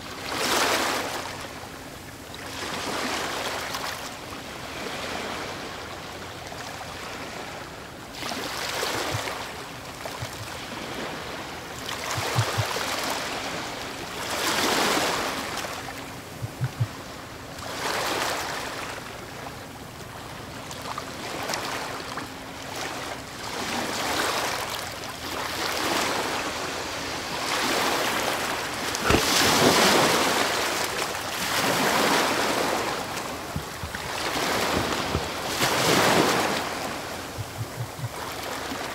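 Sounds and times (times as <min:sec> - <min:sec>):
faint steady hum: 0:00.0 - 0:38.9
soft low knocks: 0:10.1 - 0:10.5, 0:12.1 - 0:12.7, 0:16.4 - 0:17.0, 0:33.4 - 0:35.4, 0:37.2 - 0:38.2
underwater rushing water: 0:11.8 - 0:13.4, 0:16.2 - 0:17.0, 0:25.5 - 0:38.9.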